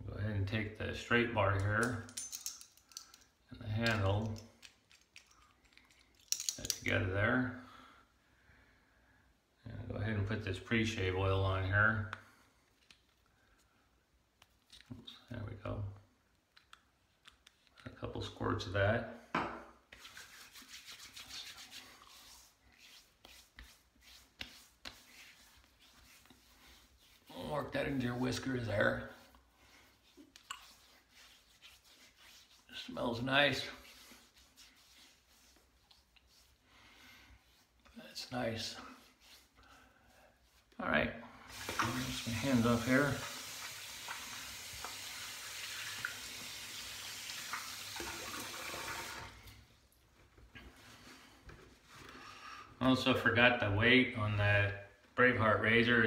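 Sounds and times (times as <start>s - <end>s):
hands rubbing skin: 1.6s - 6.8s, 19.9s - 40.8s
tap water running into sink: 41.5s - 49.4s.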